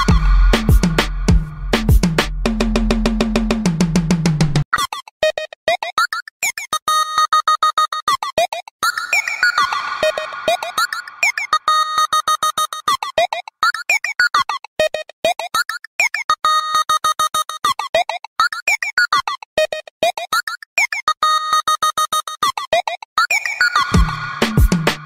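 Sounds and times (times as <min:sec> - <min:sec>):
synthesizer keyboard music: 0:00.0 - 0:03.2, 0:08.8 - 0:13.0, 0:23.3 - 0:25.0.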